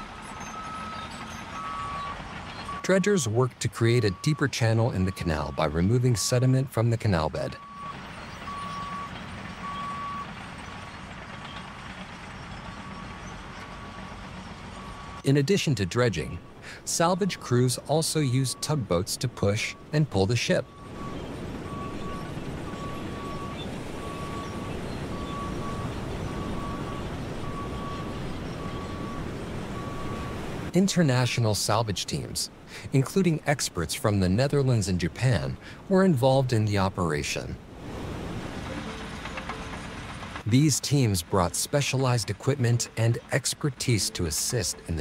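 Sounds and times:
low machinery rumble: 0:00.0 - 0:30.7, 0:37.7 - 0:45.0
backup alarm beeping: 0:00.6 - 0:10.3, 0:14.7 - 0:30.4
electronic beeps: 0:20.6 - 0:30.4.

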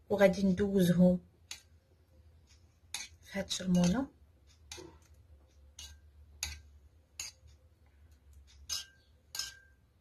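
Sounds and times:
spoon clinking against glass bowl: 0:08.6 - 0:09.8.

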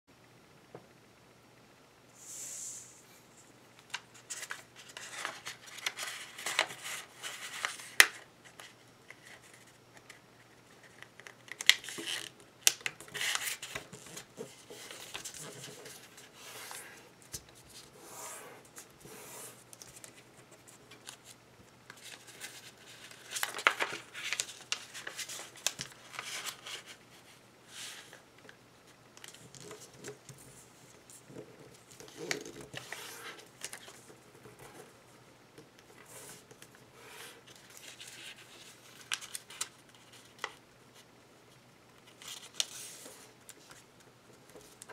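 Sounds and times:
paper rustling and crinkling: 0:03.9 - 0:17.9, 0:18.8 - 0:28.2, 0:29.2 - 0:34.9, 0:36.0 - 0:41.1, 0:42.0 - 0:44.9.

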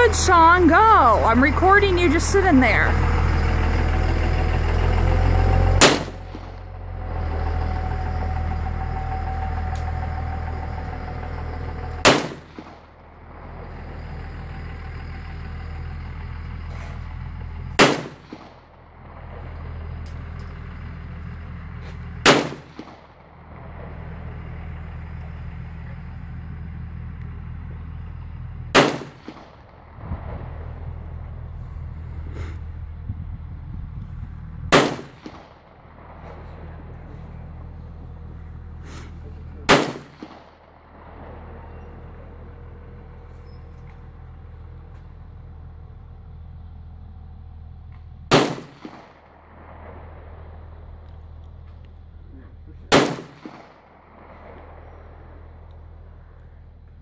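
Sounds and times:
low rumble: 0:00.0 - 0:57.0
pistol shots: 0:05.8 - 0:06.5, 0:12.0 - 0:12.8, 0:17.8 - 0:18.6, 0:22.2 - 0:23.1, 0:28.7 - 0:29.7, 0:34.7 - 0:35.6, 0:39.7 - 0:40.7, 0:48.3 - 0:49.3, 0:52.9 - 0:55.0.

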